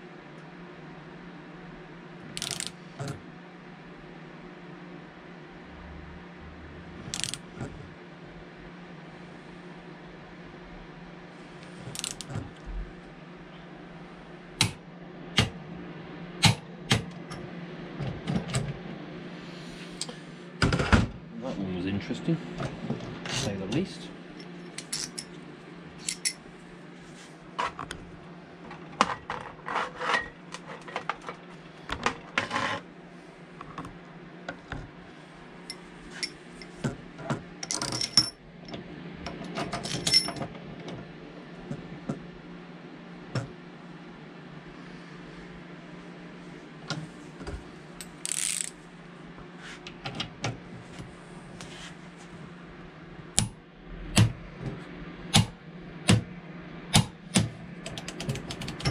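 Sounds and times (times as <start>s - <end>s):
steel parts clinking and knocking: 2.4s - 2.7s, 7.2s - 7.4s, 24.8s - 25.3s, 26.0s - 26.4s, 48.0s - 48.7s.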